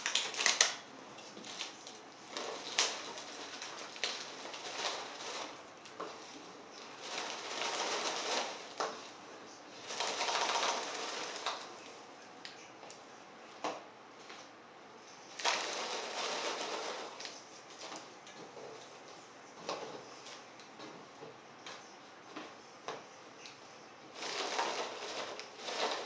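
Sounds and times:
utensil scraping in a pan: 1.3s - 9.2s, 15.4s - 20.3s, 24.1s - 26.0s.

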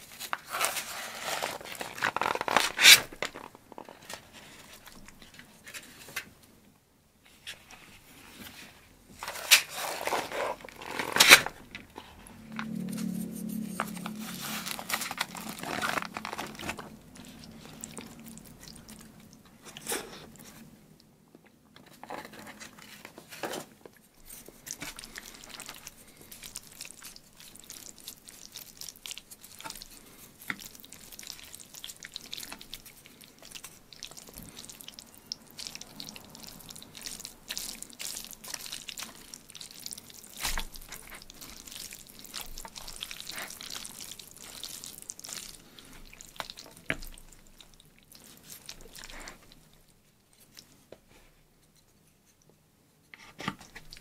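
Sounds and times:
chopsticks tossing sticky noodles: 9.2s - 20.7s, 24.2s - 49.8s.

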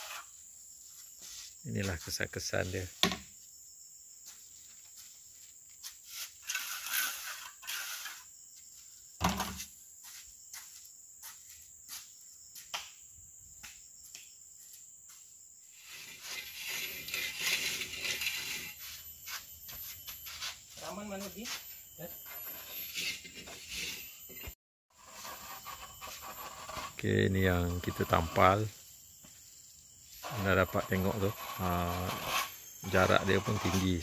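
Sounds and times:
trowel scraping mortar: 0.0s - 0.3s, 6.3s - 8.2s, 15.8s - 18.8s, 22.2s - 28.6s, 30.2s - 34.0s
plaster rasping as spread: 15.8s - 18.8s, 22.4s - 28.6s, 30.2s - 34.0s.

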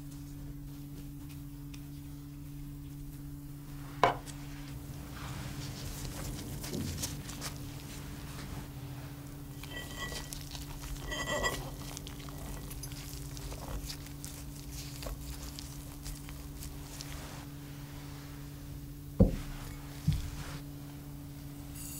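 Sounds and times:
steady low hum: 0.0s - 21.9s
gloved hands rustling: 4.2s - 17.9s.

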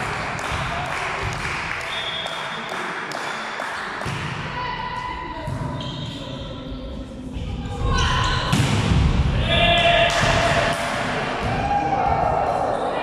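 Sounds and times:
people talking and calling out: 4.4s - 8.6s.

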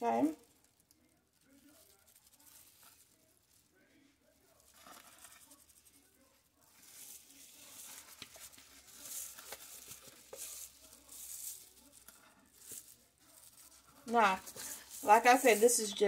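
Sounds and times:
spatula scraping plastic bowl: 6.8s - 16.0s.

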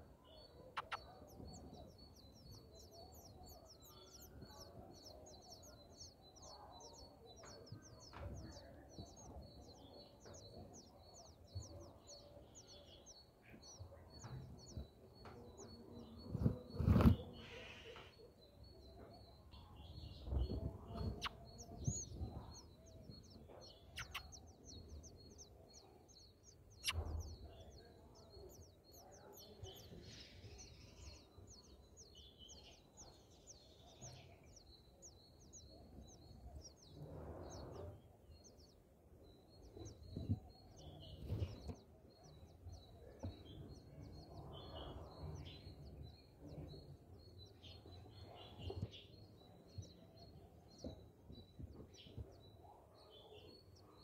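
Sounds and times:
small bird chirping: 0.0s - 54.0s.

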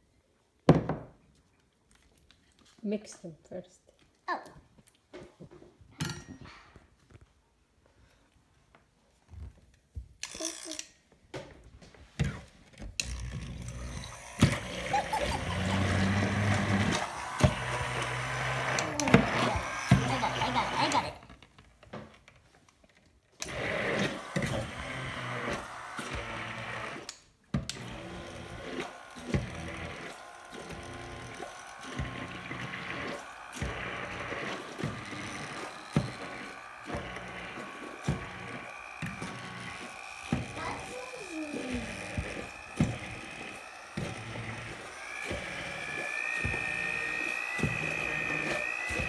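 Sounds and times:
electric blender running: 13.0s - 21.3s, 23.4s - 49.0s.

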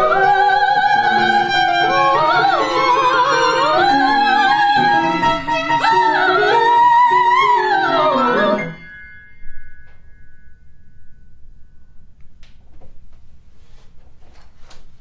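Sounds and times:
violin and cello: 0.0s - 8.6s
soprano voices singing: 0.0s - 8.8s
high note ringing: 8.3s - 13.1s.

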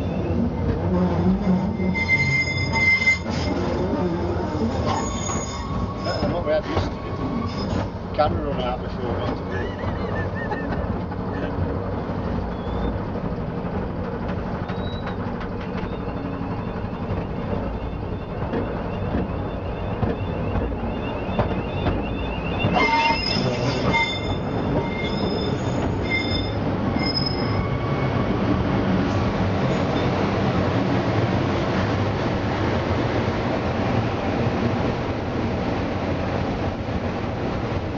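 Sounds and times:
high-pitched wheel squeal: 0.0s - 8.0s, 14.6s - 28.4s
train wheels rumbling on rails: 0.0s - 37.9s.

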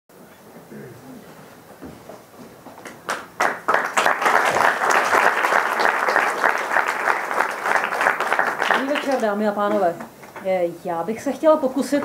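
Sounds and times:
audience applauding: 3.0s - 9.4s.

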